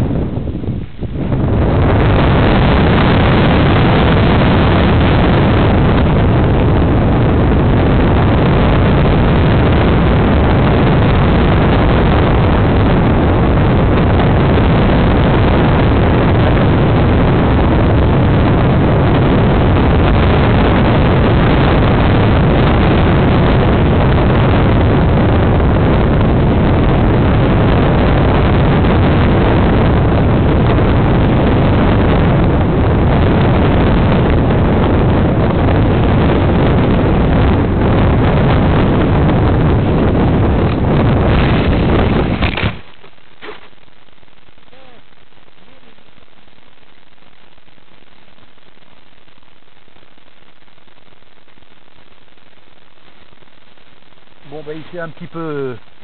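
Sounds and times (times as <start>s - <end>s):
wind rushing: 0.0s - 43.0s
aircraft motor low rumble: 0.0s - 56.0s.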